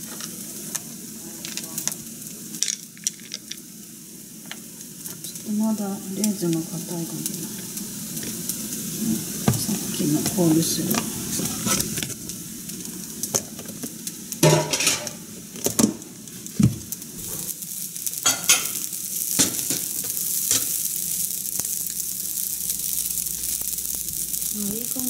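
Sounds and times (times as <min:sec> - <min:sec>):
fried rice sizzling: 0:00.0 - 0:25.0
utensil scraping a pan: 0:10.9 - 0:12.0.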